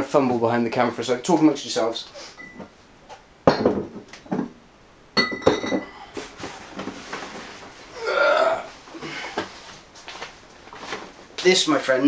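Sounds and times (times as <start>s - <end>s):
glass bottles clinking: 3.5s - 4.5s, 5.2s - 6.0s.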